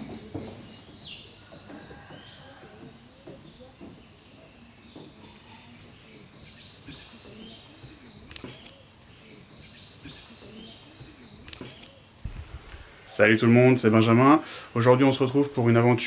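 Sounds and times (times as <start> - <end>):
scattered chirps: 10.3 - 13.4.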